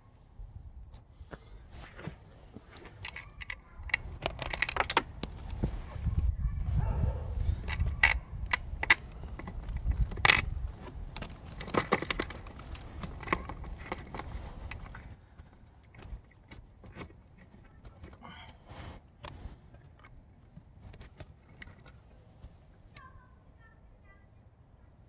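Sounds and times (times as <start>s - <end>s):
metal bolts clicking and scraping: 2.8s - 5.6s, 7.6s - 18.2s, 20.8s - 22.2s.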